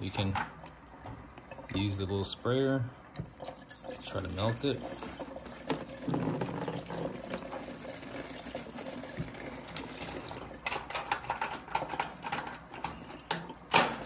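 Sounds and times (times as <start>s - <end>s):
ice and plastic clicks and knocks: 9.2s - 14.0s.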